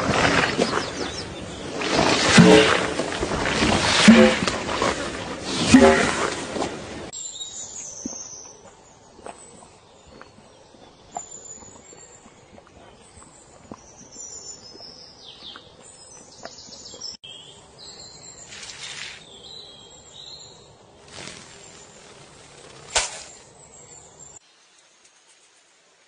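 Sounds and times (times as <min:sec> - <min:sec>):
sharp loud click: 0:22.9 - 0:23.4.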